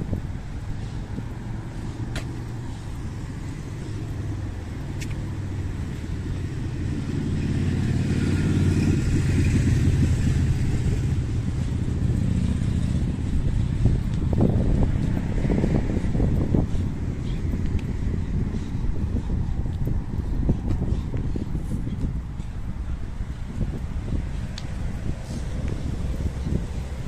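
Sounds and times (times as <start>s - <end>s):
car passing by: 0.0s - 19.3s.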